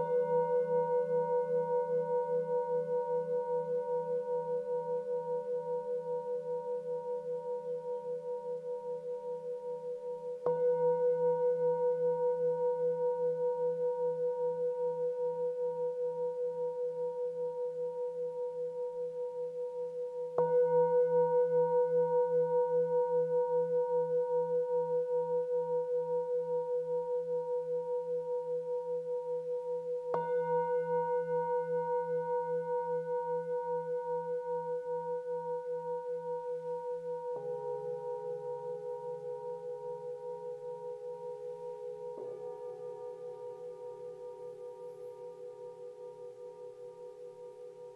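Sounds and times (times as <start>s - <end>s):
singing bowl ringing: 0.0s - 8.1s, 29.5s - 47.9s.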